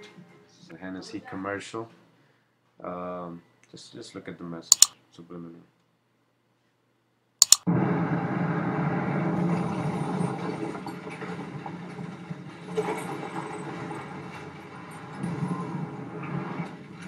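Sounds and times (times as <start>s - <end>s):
sharp clicks: 4.7s - 4.9s, 7.4s - 7.7s.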